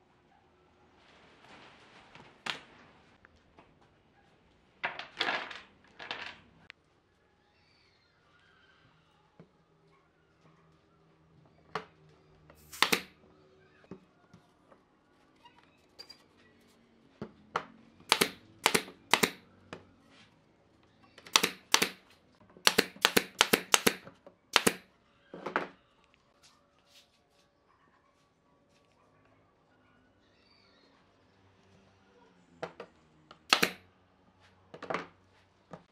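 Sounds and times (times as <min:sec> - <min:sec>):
nail gun firing: 0:12.6 - 0:13.1, 0:18.1 - 0:19.4, 0:21.3 - 0:22.0, 0:22.6 - 0:24.8, 0:33.5 - 0:33.8.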